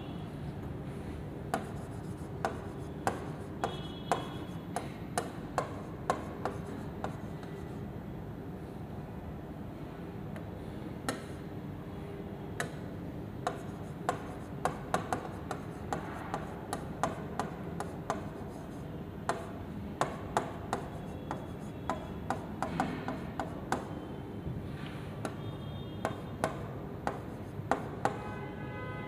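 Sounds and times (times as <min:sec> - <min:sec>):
pen tapping on glass: 0:01.5 - 0:07.2, 0:13.4 - 0:18.4, 0:19.3 - 0:24.0, 0:26.0 - 0:28.2.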